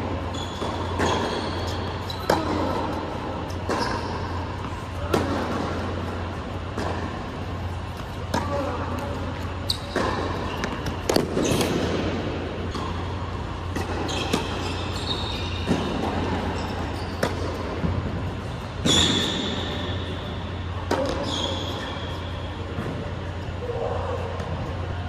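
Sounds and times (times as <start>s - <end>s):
sneakers squeaking on court: 0.0s - 23.4s
steady low hum: 0.0s - 25.0s
tennis ball bouncing on hard court: 0.3s - 8.7s, 9.7s - 19.6s.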